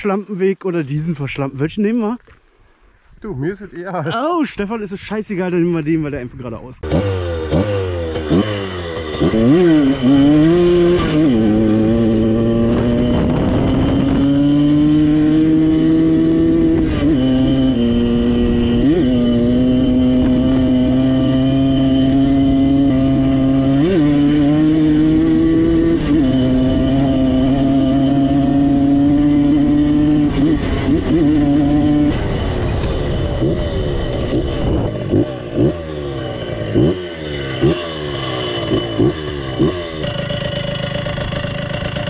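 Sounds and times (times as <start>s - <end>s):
moped engine revving: 6.8s - 42.0s.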